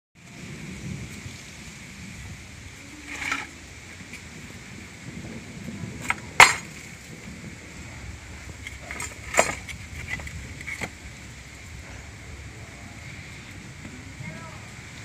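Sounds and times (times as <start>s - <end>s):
wooden boards knocking: 6.0s - 6.7s.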